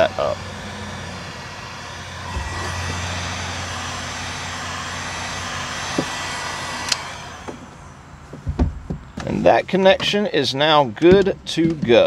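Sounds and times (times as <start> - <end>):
heat gun fan blowing: 0.0 - 9.6.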